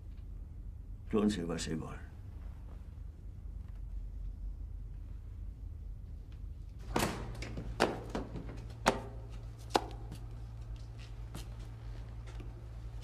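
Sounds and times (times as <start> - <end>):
steady low hum: 0.0 - 13.0
sharp knocks in small room: 6.8 - 10.2.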